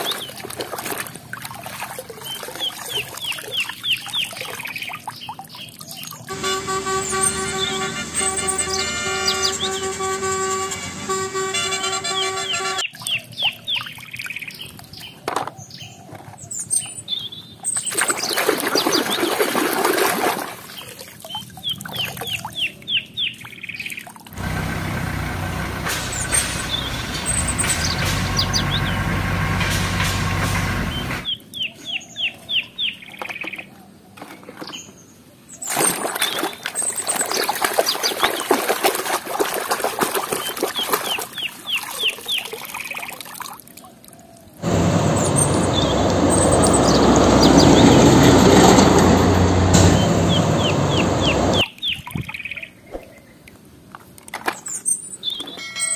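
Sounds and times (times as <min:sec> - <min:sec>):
water splashing off toys: 0:00.0 - 0:06.0, 0:17.8 - 0:22.6, 0:35.6 - 0:44.4
bird chirps: 0:02.3 - 0:18.0, 0:26.1 - 0:29.0, 0:45.2 - 0:48.0
forklift engine running: 0:06.3 - 0:12.8, 0:24.4 - 0:31.3, 0:44.6 - 0:51.6.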